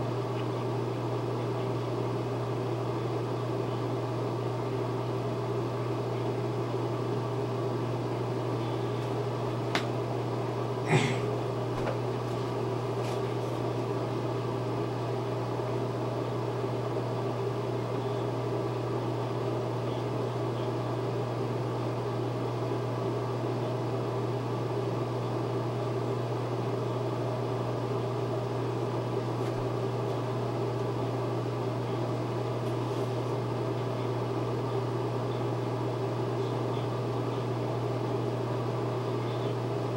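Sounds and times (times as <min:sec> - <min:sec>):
machine hum: 0:05.6 - 0:18.8.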